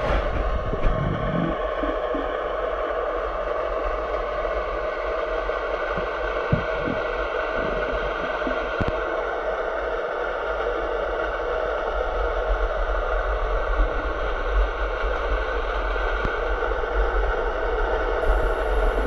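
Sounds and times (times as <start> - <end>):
low rumble: 0.0 - 19.0
underwater hiss: 5.2 - 11.7, 18.2 - 19.0.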